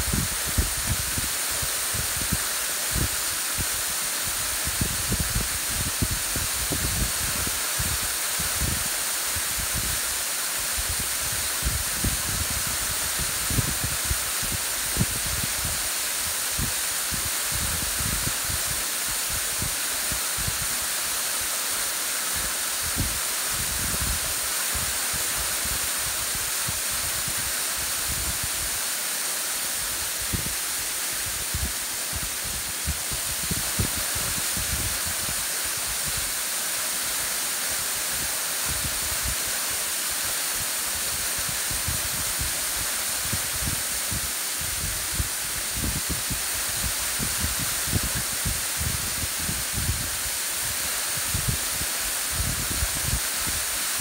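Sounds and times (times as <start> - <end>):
waterfall rushing: 0.0 - 54.0
wind buffeting microphone: 31.2 - 35.4.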